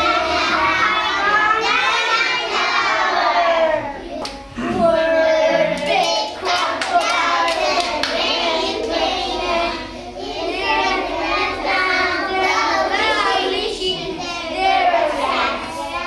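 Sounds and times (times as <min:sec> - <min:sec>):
children singing: 0:00.0 - 0:16.0
hand claps: 0:05.8 - 0:08.2.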